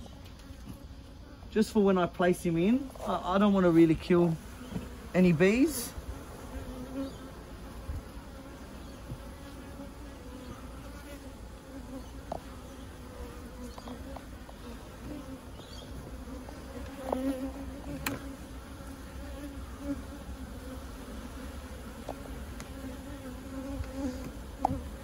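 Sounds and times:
bees buzzing: 0:00.0 - 0:25.0
small ticks: 0:13.6 - 0:14.7, 0:22.0 - 0:22.8, 0:23.7 - 0:24.8.

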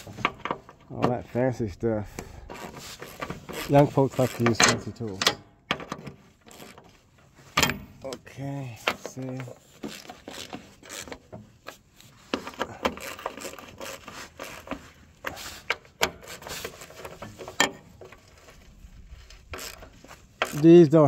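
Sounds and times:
ratchet clicking on bolts: 0:02.5 - 0:06.8, 0:09.0 - 0:17.8, 0:19.5 - 0:20.8.

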